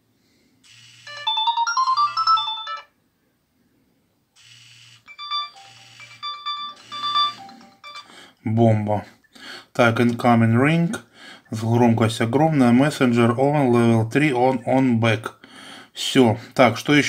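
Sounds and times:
electronic ringtone melodies: 0:00.7 - 0:03.0, 0:04.4 - 0:08.1.

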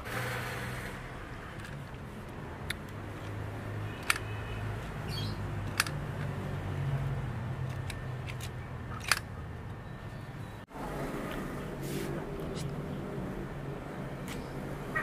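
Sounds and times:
plastic toy clicks: 0:04.0 - 0:05.0, 0:05.6 - 0:06.3, 0:07.6 - 0:09.3.

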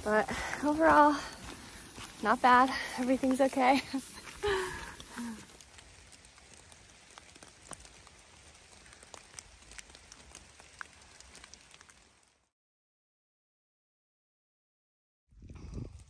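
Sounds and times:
wet snow pattering: 0:00.0 - 0:12.5.

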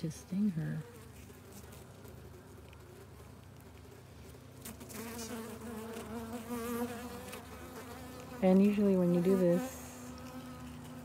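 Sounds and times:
bees buzzing: 0:04.6 - 0:11.0.

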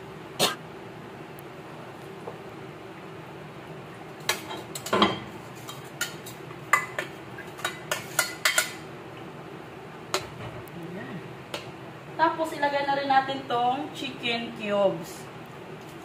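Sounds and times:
metal spoon clinking on cookware: 0:06.0 - 0:08.8.

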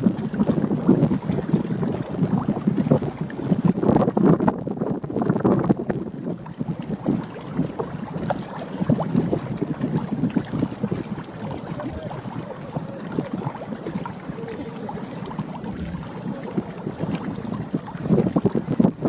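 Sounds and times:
wind buffeting the microphone: 0:00.0 - 0:19.0.

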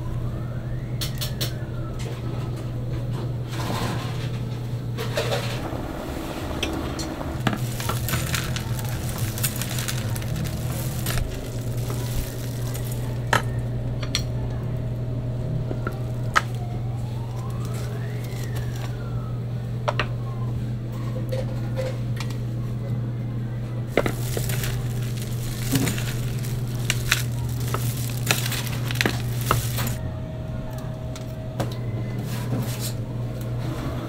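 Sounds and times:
low machine hum: 0:00.0 - 0:34.0
wooden utensils clicking and knocking: 0:06.6 - 0:14.3, 0:15.8 - 0:19.0, 0:23.9 - 0:30.0.

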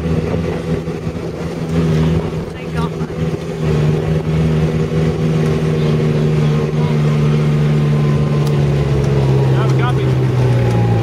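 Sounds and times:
tyre and road noise: 0:00.0 - 0:11.0
vehicle engine drone: 0:00.0 - 0:11.0.

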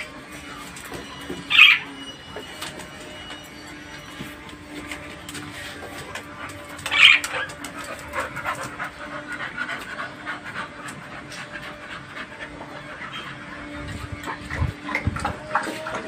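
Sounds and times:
dog panting: 0:05.3 - 0:16.0.

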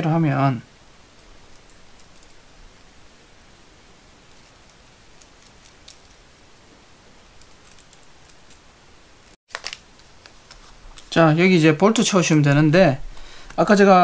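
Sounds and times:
small plastic parts clicking: 0:01.1 - 0:02.5, 0:04.3 - 0:06.2, 0:07.3 - 0:08.6, 0:09.5 - 0:11.1.

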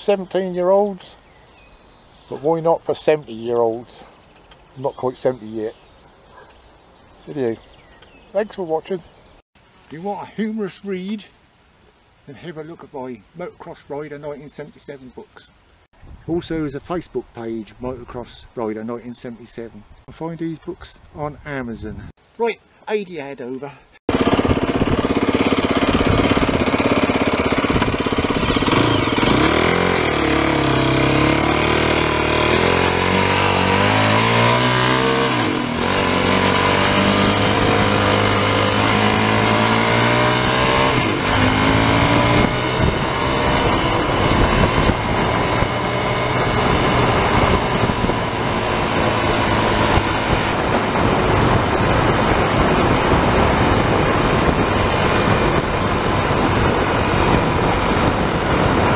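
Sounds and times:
motorcycle engine accelerating: 0:24.1 - 0:58.9
wind rushing over microphone: 0:24.1 - 0:58.9.

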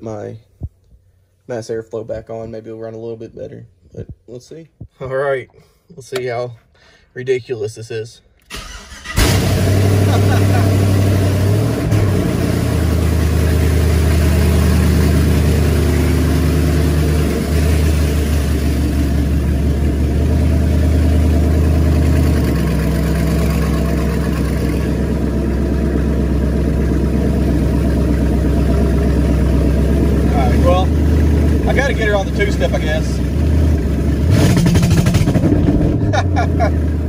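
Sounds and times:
loud raw engine idling: 0:12.4 - 0:35.6.

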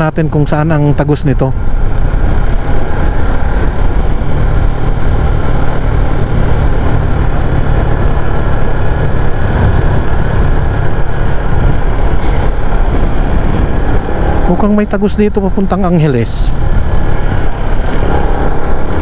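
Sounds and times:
motorcycle engine: 0:00.0 - 0:19.0
wind rushing over microphone: 0:00.0 - 0:19.0.

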